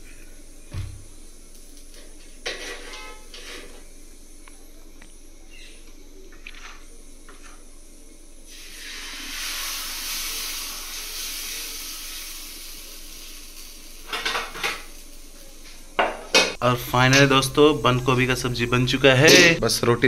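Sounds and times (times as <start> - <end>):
batter sizzling on hot pan: 0.0 - 4.3, 8.4 - 19.3
kitchen utensils clattering: 2.4 - 3.8.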